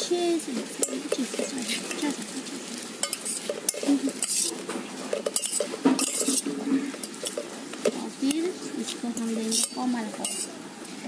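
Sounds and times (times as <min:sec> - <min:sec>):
spoon scraping in steel bowl: 0:00.8 - 0:08.0, 0:09.3 - 0:10.6
metal clinking on metal: 0:05.1 - 0:06.4.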